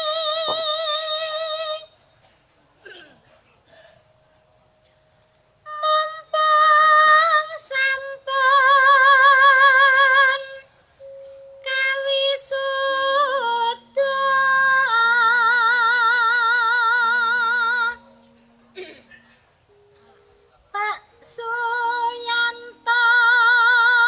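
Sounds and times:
woman singing with vibrato: 0:00.0 - 0:02.0, 0:05.7 - 0:10.8, 0:11.6 - 0:18.3, 0:20.7 - 0:24.0
lower accompanying notes: 0:04.0 - 0:24.0.

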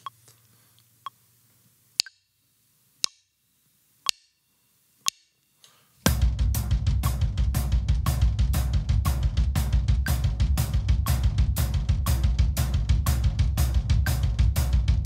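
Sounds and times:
metronome clicking: 0:02.0 - 0:02.4, 0:03.0 - 0:03.4, 0:04.0 - 0:05.5, 0:11.0 - 0:11.3, 0:14.0 - 0:14.3
drum kit playing triplets: 0:06.1 - 0:15.0.

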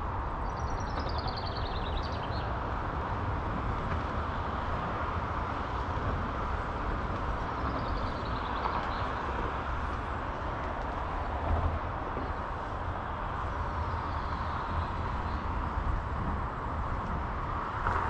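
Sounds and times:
distant city traffic rumble: 0:00.0 - 0:18.0
small bird singing: 0:00.4 - 0:02.6.

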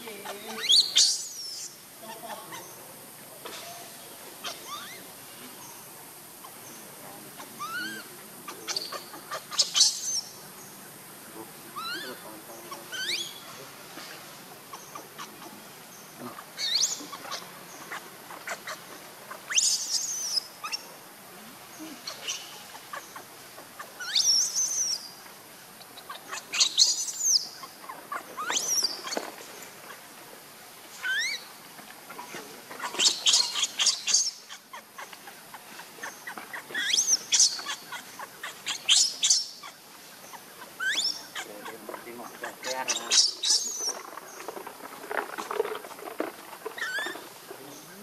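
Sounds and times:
baby monkey shrill squeals: 0:00.2 - 0:02.7, 0:04.4 - 0:05.0, 0:07.6 - 0:08.1, 0:08.7 - 0:10.3, 0:11.8 - 0:12.2, 0:12.9 - 0:13.5, 0:16.6 - 0:18.8, 0:19.5 - 0:20.8, 0:24.0 - 0:25.0, 0:26.0 - 0:29.2, 0:31.0 - 0:31.5, 0:32.8 - 0:35.1, 0:36.0 - 0:39.8, 0:40.7 - 0:41.5, 0:42.4 - 0:43.9, 0:46.8 - 0:47.2.

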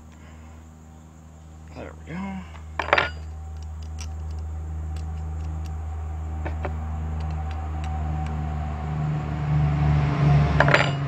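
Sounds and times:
low machine hum: 0:00.0 - 0:11.0
light clicks of cable clamps: 0:02.8 - 0:08.4.

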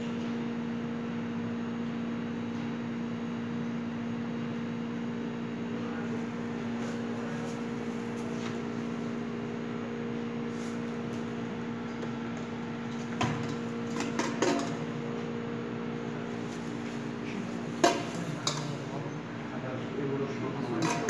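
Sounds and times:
kitchen equipment humming: 0:05.8 - 0:21.0
metal bowl clinking: 0:13.4 - 0:14.8, 0:17.8 - 0:18.9, 0:20.8 - 0:21.0.

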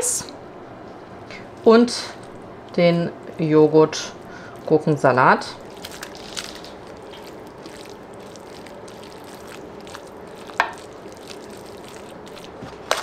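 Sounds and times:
spatula spreading meat mixture: 0:05.6 - 0:13.0.

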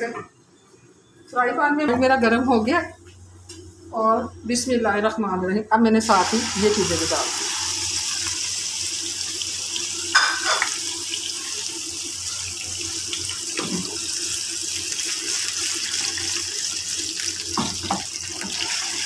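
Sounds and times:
meat sizzling in hot oil: 0:06.0 - 0:19.0.

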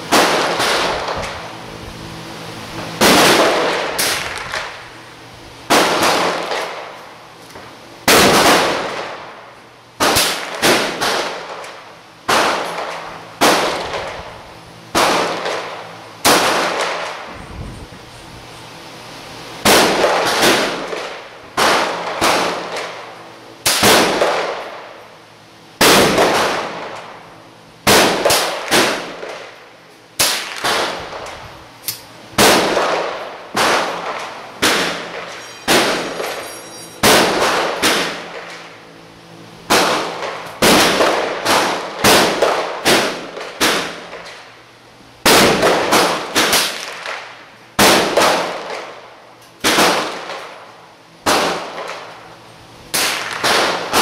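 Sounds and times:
rifle shots echoing indoors: 0:03.0 - 0:04.7, 0:05.7 - 0:06.9, 0:08.0 - 0:09.4, 0:10.0 - 0:14.1, 0:14.9 - 0:17.2, 0:19.6 - 0:23.0, 0:23.6 - 0:24.9, 0:25.8 - 0:27.2, 0:27.8 - 0:29.6, 0:30.2 - 0:31.3, 0:32.4 - 0:38.8, 0:39.7 - 0:44.5, 0:45.2 - 0:49.0, 0:49.6 - 0:50.6, 0:51.2 - 0:52.1, 0:52.9 - 0:54.0.

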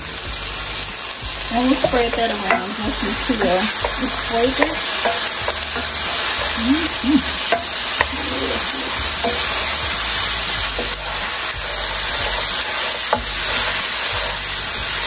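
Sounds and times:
vegetables sizzling in oil: 0:00.0 - 0:15.0
wooden spoon stirring and knocking: 0:01.5 - 0:15.0.

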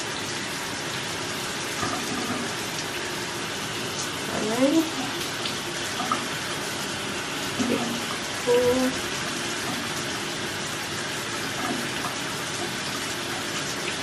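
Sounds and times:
person humming: 0:08.4 - 0:09.0.

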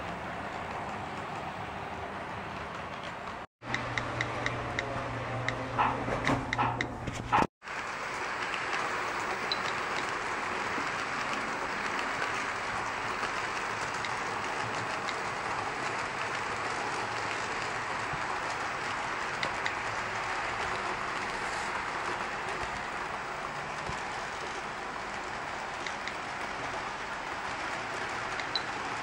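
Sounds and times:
model train motor whirring: 0:07.8 - 0:29.0.

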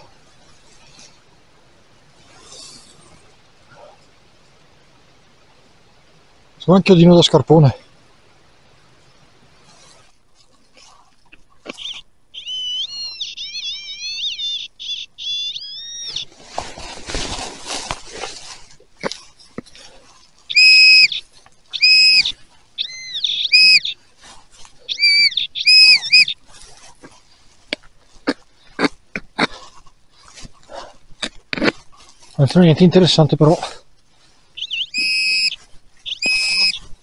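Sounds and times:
rustling and scraping on ground: 0:00.0 - 0:04.7, 0:08.9 - 0:37.0
metal detector warbling tone: 0:11.7 - 0:16.2, 0:20.5 - 0:21.2, 0:21.8 - 0:23.9, 0:24.9 - 0:26.4, 0:34.7 - 0:35.6, 0:36.2 - 0:36.8
metal detector short beeps: 0:20.5 - 0:21.2, 0:21.8 - 0:23.9, 0:25.0 - 0:26.4, 0:34.7 - 0:35.6, 0:36.2 - 0:36.8.

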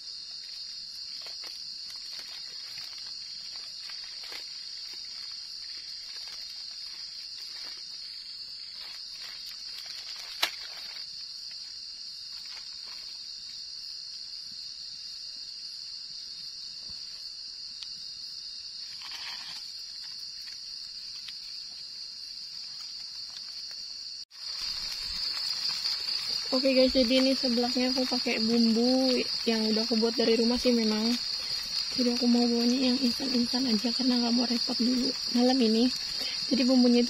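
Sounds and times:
wood fire crackling: 0:00.0 - 0:13.5, 0:18.8 - 0:37.0
night insects drone: 0:00.0 - 0:37.0
sharp crack of fire: 0:09.0 - 0:11.1, 0:24.3 - 0:29.2.

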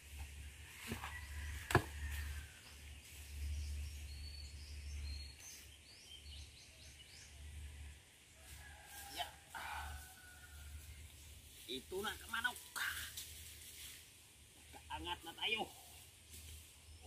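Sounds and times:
small birds chirping: 0:02.6 - 0:08.1.

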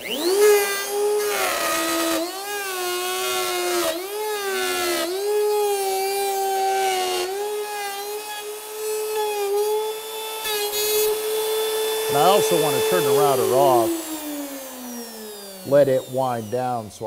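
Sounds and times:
router whining while cutting wood: 0:00.0 - 0:17.0.

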